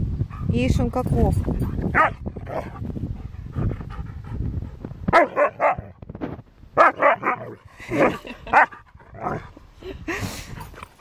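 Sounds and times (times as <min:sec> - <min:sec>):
dogs barking: 0:01.9 - 0:02.7, 0:05.1 - 0:05.9, 0:06.8 - 0:09.4
dogs grumbling: 0:07.1 - 0:09.6.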